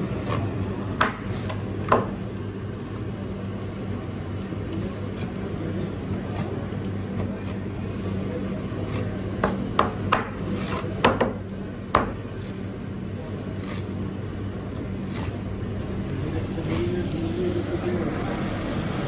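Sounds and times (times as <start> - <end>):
steady low hum: 0.0 - 19.0
knife chopping on cutting board: 1.0 - 2.2, 8.9 - 12.2.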